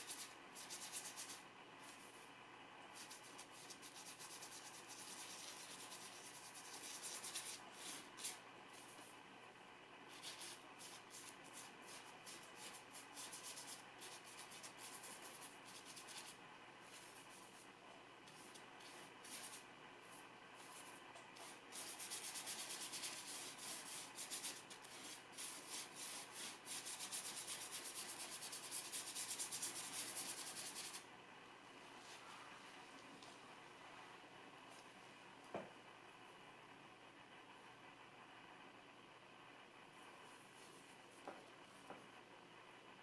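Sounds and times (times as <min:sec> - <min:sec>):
brush scrubbing paint on paper: 0:00.0 - 0:02.3, 0:02.9 - 0:09.1, 0:10.1 - 0:31.0.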